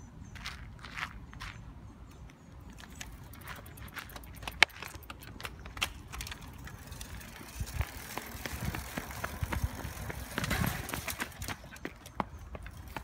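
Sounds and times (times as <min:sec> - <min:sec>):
bike rattling over cobblestones: 0:02.7 - 0:13.0.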